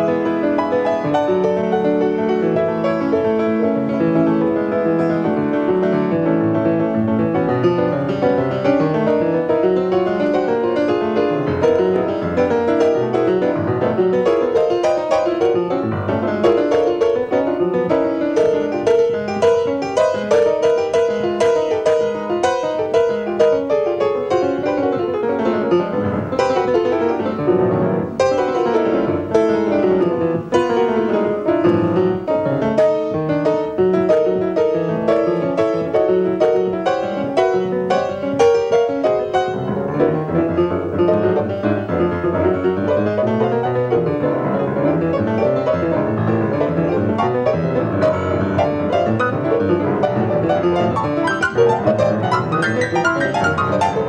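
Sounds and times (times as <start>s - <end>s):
free jazz solo piano: 0.0s - 54.0s.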